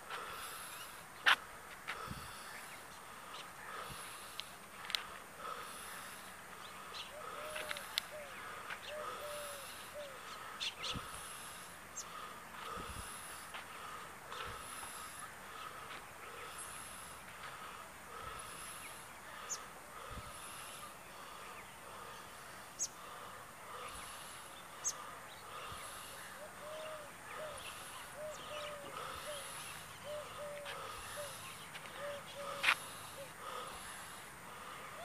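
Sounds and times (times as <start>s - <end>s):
hoopoe hooting: 7.2s - 10.2s, 26.4s - 33.7s.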